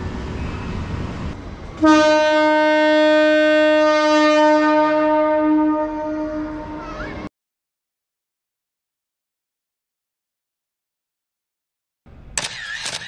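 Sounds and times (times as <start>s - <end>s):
train horn: 1.8s - 7.0s.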